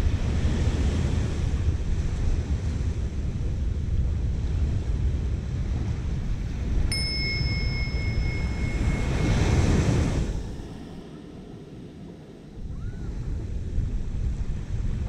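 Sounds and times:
ocean surf: 0:00.0 - 0:15.0
wind on microphone: 0:00.0 - 0:15.0
bell chime ringing: 0:06.9 - 0:10.2.

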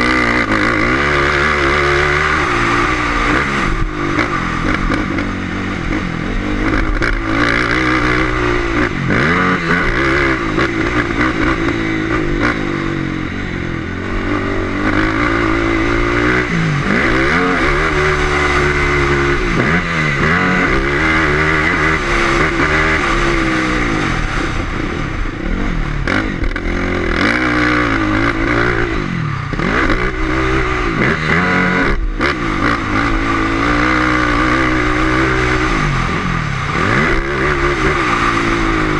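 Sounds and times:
racing engine revving: 0:00.0 - 0:38.9.

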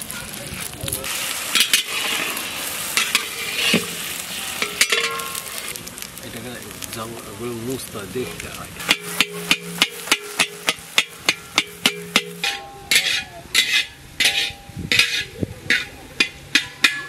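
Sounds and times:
ladle scraping a pan: 0:00.0 - 0:05.7, 0:08.3 - 0:17.0
metal spatula tapping a pan: 0:01.6 - 0:02.2, 0:03.0 - 0:04.0, 0:04.6 - 0:05.5, 0:08.8 - 0:17.0.

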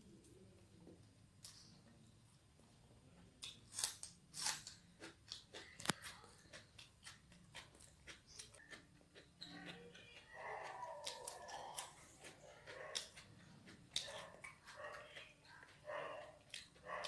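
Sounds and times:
chewing crunchy food: 0:03.4 - 0:17.0.

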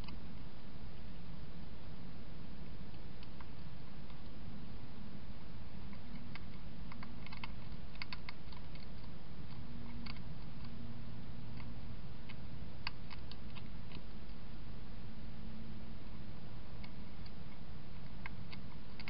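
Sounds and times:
steady low hum: 0:00.0 - 0:19.0
hedgehog crunching food: 0:05.9 - 0:10.8.

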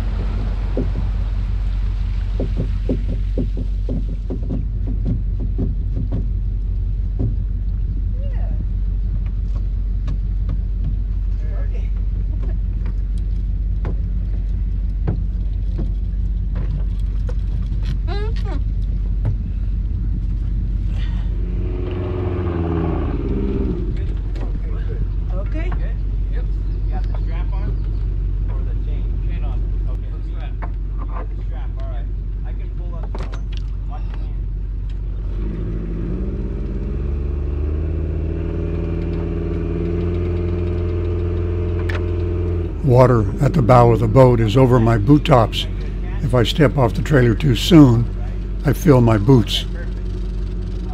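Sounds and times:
engine running: 0:00.0 - 0:31.0, 0:34.4 - 0:50.9
outboard motor idling: 0:00.0 - 0:32.8, 0:38.9 - 0:50.9
boots knocking on wooden boat: 0:00.2 - 0:01.3, 0:02.4 - 0:06.5, 0:07.1 - 0:07.6, 0:19.2 - 0:19.4.

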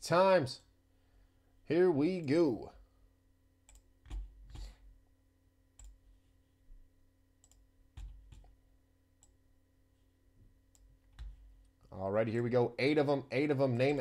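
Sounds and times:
low steady hum: 0:00.0 - 0:14.0
faint mouse clicks: 0:03.7 - 0:04.7, 0:07.4 - 0:07.6.

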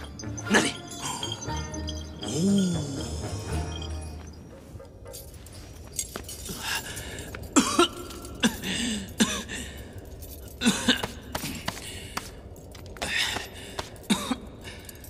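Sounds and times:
man coughing: 0:07.5 - 0:09.8, 0:10.6 - 0:11.8, 0:14.0 - 0:14.8.

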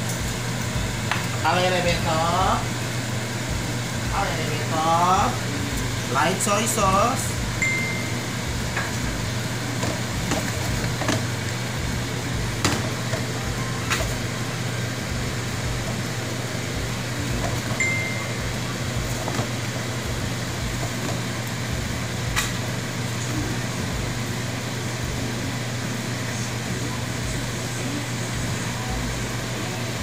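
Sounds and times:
food sizzling in a wok: 0:00.0 - 0:30.0
low hum: 0:06.8 - 0:30.0.

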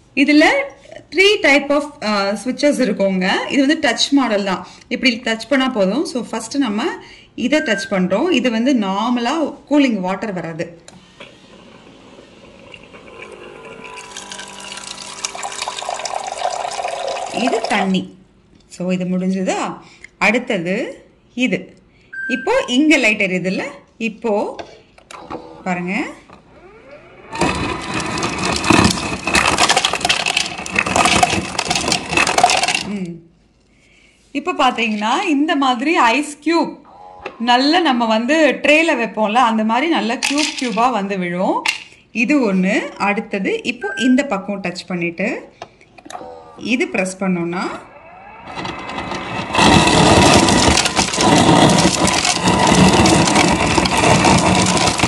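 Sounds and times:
ice dispenser motor whining: 0:11.0 - 0:18.0, 0:26.4 - 0:32.9, 0:47.4 - 0:55.0
ice cubes clattering into glass: 0:14.0 - 0:17.8, 0:27.4 - 0:32.9, 0:40.2 - 0:40.9, 0:50.2 - 0:55.0.

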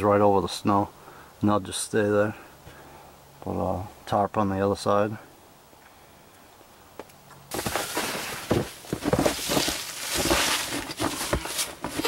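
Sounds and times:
conifer boughs rustling: 0:07.5 - 0:12.0
packed snow crunching: 0:07.5 - 0:12.0.

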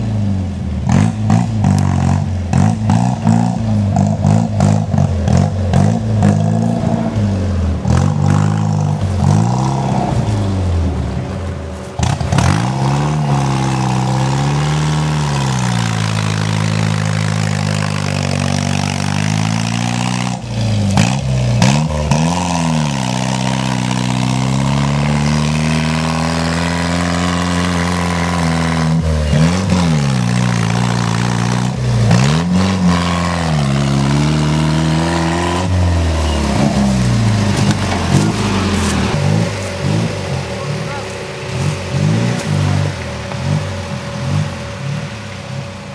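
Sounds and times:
engine revving hard: 0:00.0 - 0:11.2, 0:12.0 - 0:45.9.

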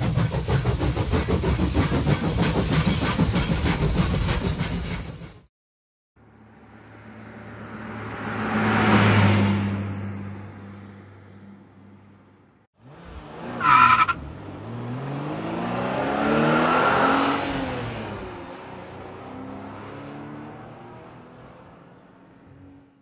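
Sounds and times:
car engine passing by: 0:06.6 - 0:12.2, 0:12.8 - 0:23.0
tire squeal: 0:13.5 - 0:14.2.

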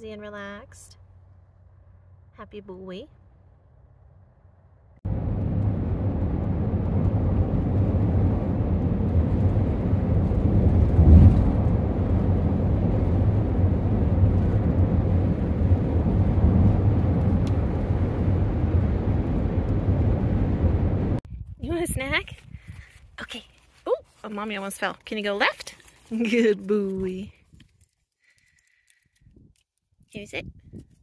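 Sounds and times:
road and engine rumble in cabin: 0:04.8 - 0:21.3.

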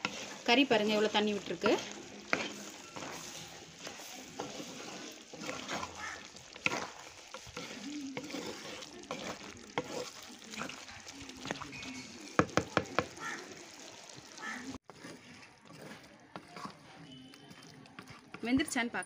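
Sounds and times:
wooden spatula scraping: 0:00.0 - 0:13.8, 0:14.4 - 0:18.5
meat sizzling in a clay pot: 0:00.0 - 0:18.8.

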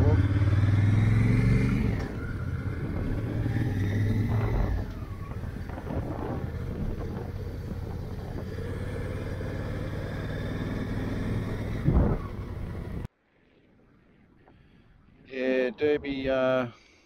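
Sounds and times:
motorcycle engine cruising: 0:00.0 - 0:13.1
wind and road noise: 0:00.0 - 0:17.0.

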